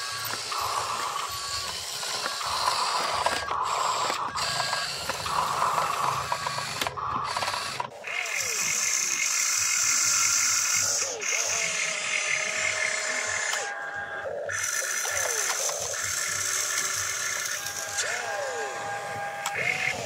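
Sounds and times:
electric motor whining: 0.0s - 20.0s.

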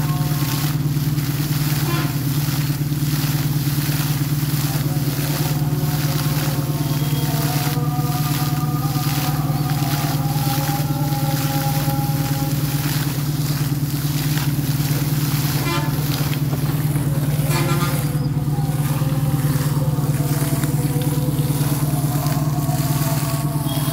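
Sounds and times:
air compressor engine droning: 0.0s - 23.9s
water spraying and splashing: 0.0s - 23.9s.

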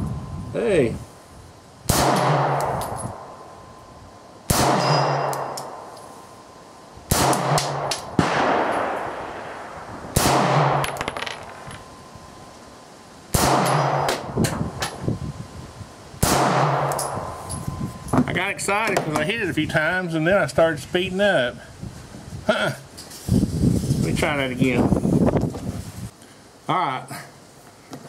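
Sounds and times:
pistol shots with echoing tail: 1.9s - 3.3s, 4.5s - 5.9s, 7.1s - 11.2s, 13.3s - 14.3s, 16.2s - 17.2s.

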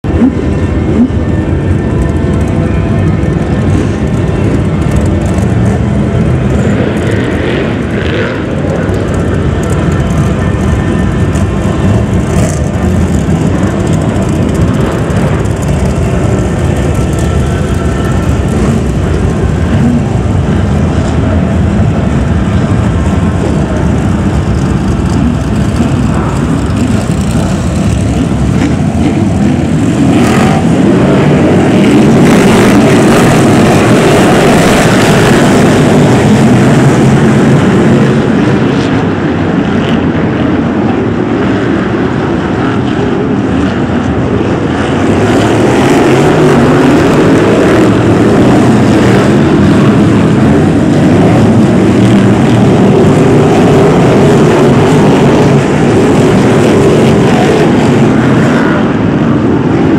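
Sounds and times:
stock car engines racing: 0.0s - 59.9s.

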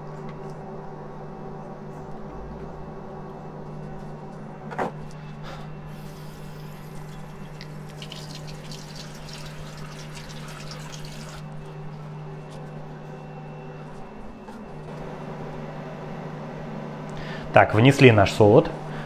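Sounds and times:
induction hob humming: 0.0s - 19.0s
foam fizzing and crackling: 6.0s - 11.5s.

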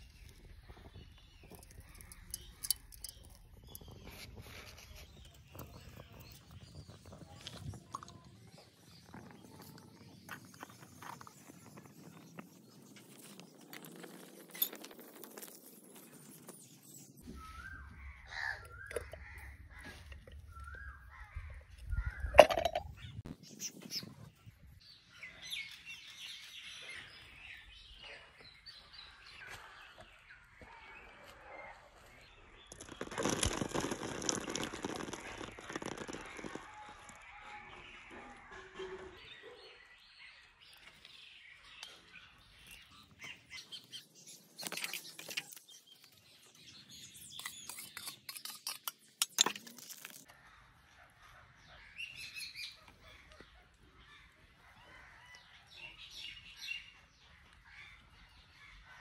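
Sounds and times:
water spattering on a leaf: 32.8s - 36.6s
wood fire crackling and popping: 32.8s - 36.6s.

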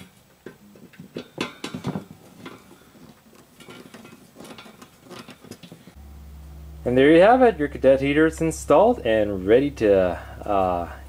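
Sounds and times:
screwdriver clinking on metal grille: 0.0s - 5.9s.

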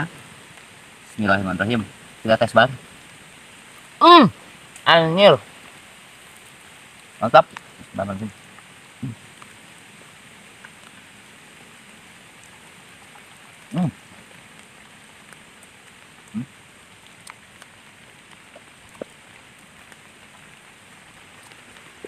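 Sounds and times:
steady rain falling: 0.0s - 22.0s
person humming: 16.3s - 16.5s.

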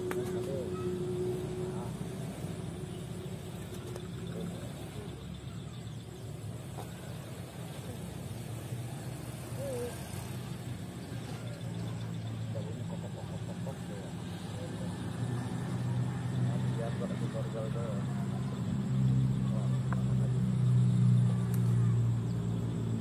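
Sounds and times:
faint voices: 0.0s - 22.9s
distant motor humming: 0.0s - 23.0s.

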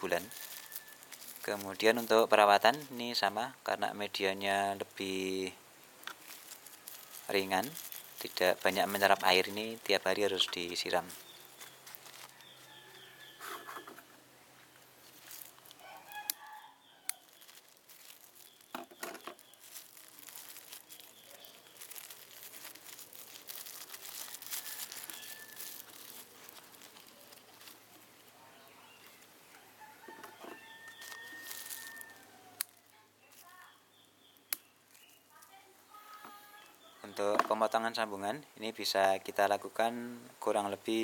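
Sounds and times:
rooster crowing: 0.0s - 1.1s, 15.8s - 17.4s, 24.2s - 26.0s, 29.5s - 32.6s
plastic tape crinkling: 0.0s - 3.3s, 4.4s - 13.4s, 14.7s - 29.6s, 30.3s - 36.8s.

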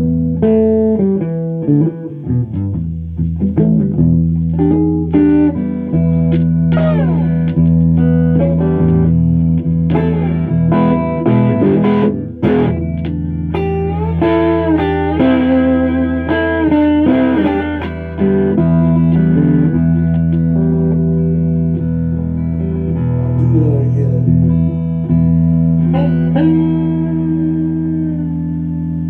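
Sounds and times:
electric guitar lead line: 0.0s - 29.0s
sustained low notes: 21.7s - 25.8s.

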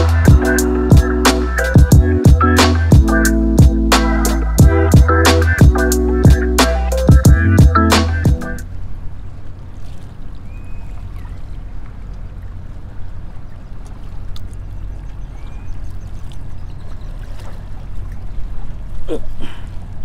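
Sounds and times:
steady low rumble: 0.0s - 17.0s
small waves lapping against rocks: 9.7s - 20.0s.

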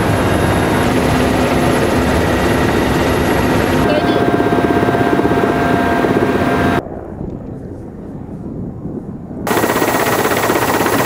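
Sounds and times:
helicopter rotor chop: 0.0s - 6.8s, 9.5s - 11.0s
turbine whine: 0.0s - 11.0s.

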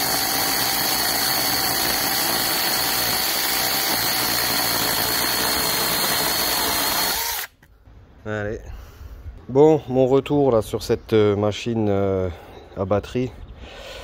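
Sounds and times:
chainsaw cutting wood: 0.0s - 7.6s.

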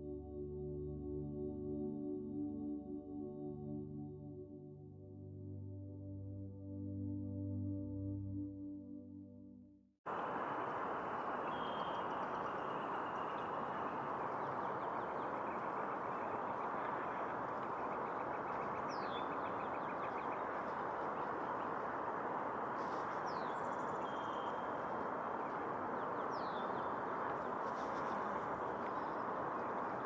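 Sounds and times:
birds chirping: 10.1s - 30.0s
steady outdoor rushing noise: 10.1s - 30.0s
bird trill: 10.7s - 21.7s, 23.2s - 28.0s.

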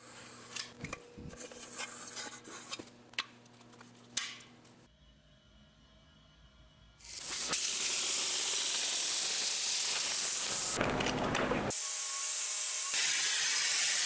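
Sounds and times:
plasma cutter hissing: 7.0s - 10.8s.

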